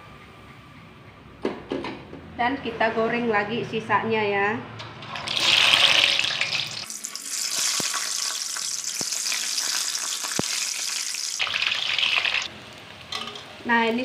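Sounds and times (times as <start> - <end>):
dough sizzling in hot oil: 5.1 - 14.0.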